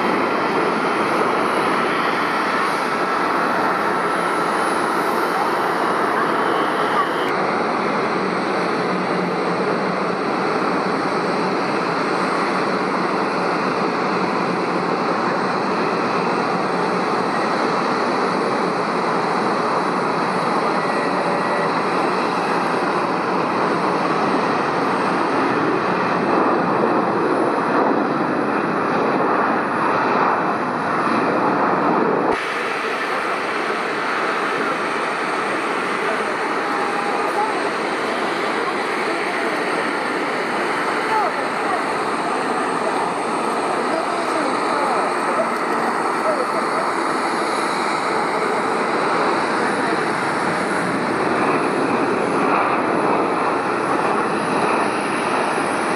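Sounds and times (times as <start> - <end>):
jet airliner engine rush: 0.0 - 55.9.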